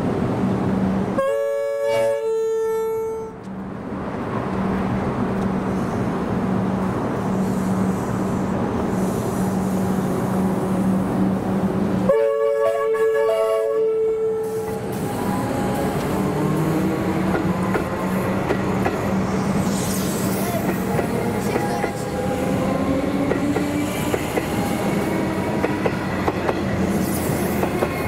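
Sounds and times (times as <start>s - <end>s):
train rumble and hum: 0.0s - 28.0s
train horn blasts: 1.2s - 3.4s, 12.1s - 14.9s.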